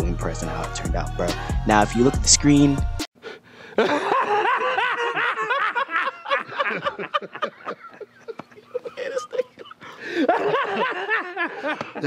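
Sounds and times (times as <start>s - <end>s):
men laughing: 3.6s - 12.0s.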